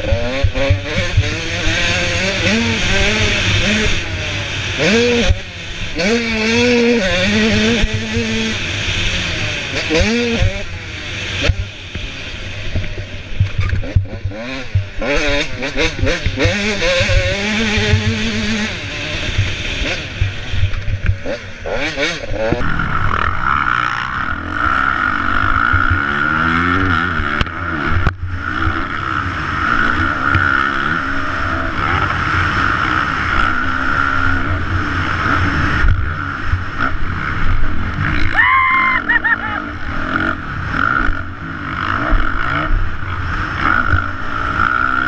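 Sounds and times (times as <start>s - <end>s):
dirt bike engine revving: 0.0s - 45.0s
high gliding whine: 22.2s - 26.2s.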